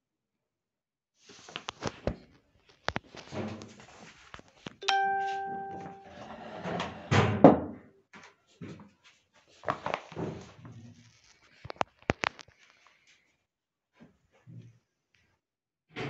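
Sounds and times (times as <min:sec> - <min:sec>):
short ringing chime: 0:04.8 - 0:06.3.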